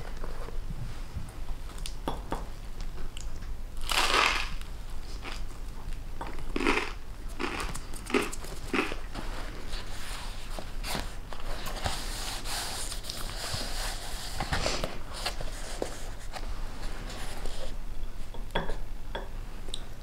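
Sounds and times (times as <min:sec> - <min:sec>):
toast crunching when bitten: 0:06.4 - 0:09.0.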